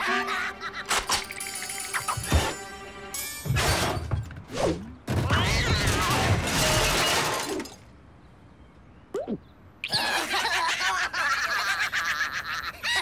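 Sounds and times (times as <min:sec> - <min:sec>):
metal car parts crashing: 0:03.2 - 0:04.5, 0:05.1 - 0:07.9.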